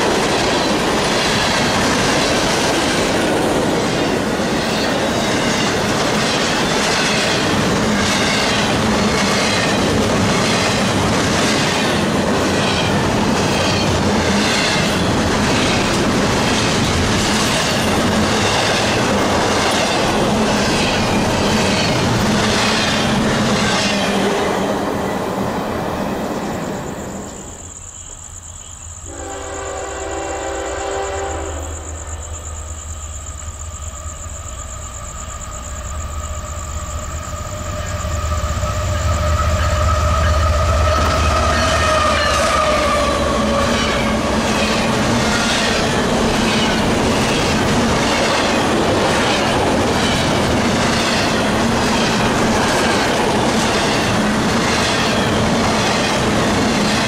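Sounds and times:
train wheels clattering: 0:00.0 - 0:25.0, 0:38.9 - 0:57.0
locomotive air horn: 0:29.1 - 0:31.7.

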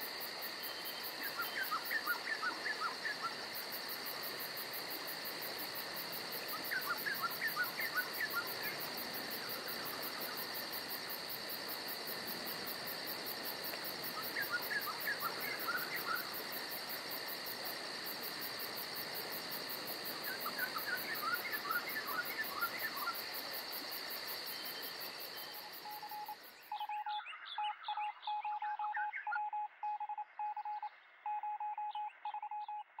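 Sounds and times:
insect chorus: 0:00.0 - 0:32.8
electronic beeps: 0:28.3 - 0:33.0.

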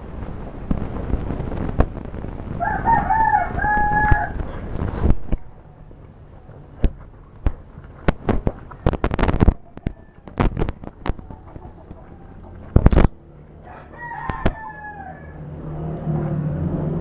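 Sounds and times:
steady rushing noise: 0:00.0 - 0:17.0
rooster crowing: 0:02.6 - 0:04.8, 0:08.7 - 0:12.7, 0:13.5 - 0:16.3.

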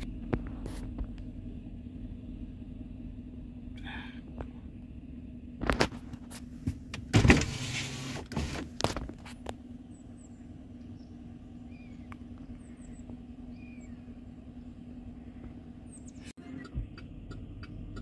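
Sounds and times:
vehicle engine idling: 0:00.0 - 0:18.0
faint bird chirps: 0:09.9 - 0:16.8.

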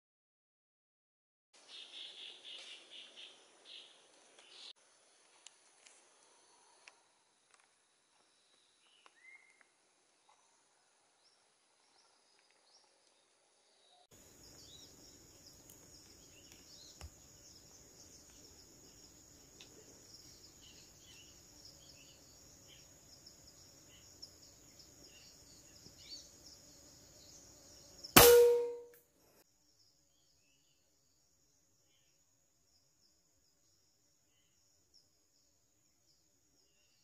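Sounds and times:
high-pitched insect chorus: 0:14.2 - 0:28.2
air rifle shot: 0:28.2 - 0:28.8
brief ringing tone: 0:28.2 - 0:28.8.

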